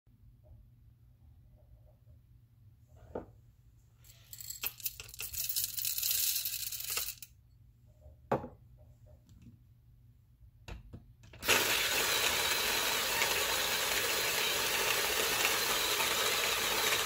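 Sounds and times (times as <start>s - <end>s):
coffee beans rattling: 4.1s - 7.3s, 11.4s - 17.0s
grinder whirring: 11.4s - 17.0s.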